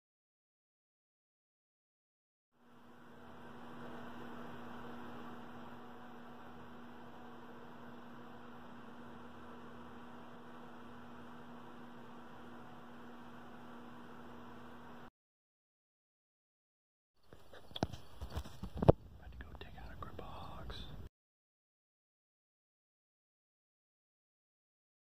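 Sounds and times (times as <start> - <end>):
electrical hum: 2.6 - 15.1.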